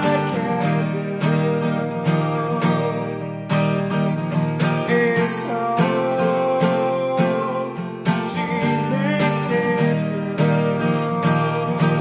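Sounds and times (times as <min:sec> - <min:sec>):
acoustic guitar strumming chords: 0:00.0 - 0:12.0.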